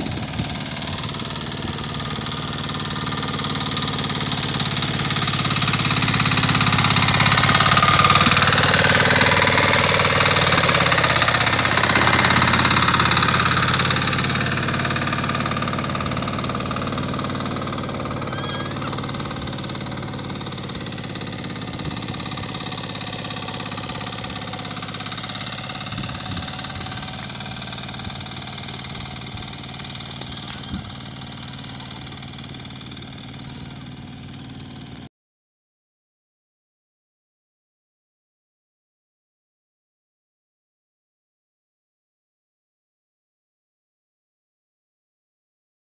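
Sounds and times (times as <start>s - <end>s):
power tiller engine running: 0.0s - 35.1s.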